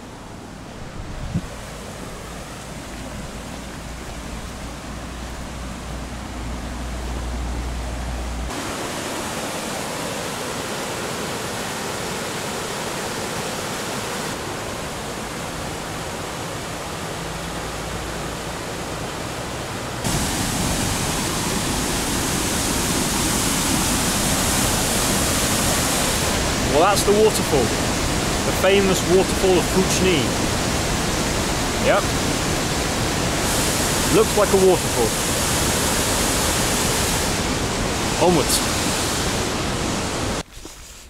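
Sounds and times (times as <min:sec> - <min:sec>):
waterfall rushing: 0:00.0 - 0:40.4.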